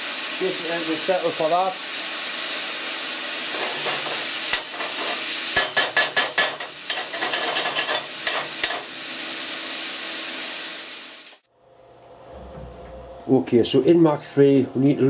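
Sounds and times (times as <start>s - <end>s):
air hissing: 1.6s - 11.5s
hand tool scraping steel plate: 3.5s - 8.8s.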